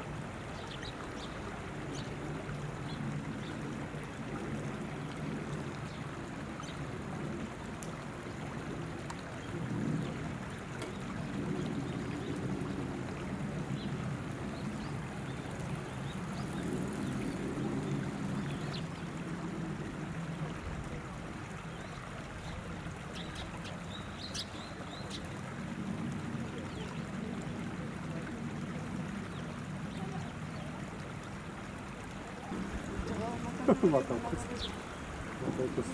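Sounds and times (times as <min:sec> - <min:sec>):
river water running over stones: 0:00.0 - 0:35.9.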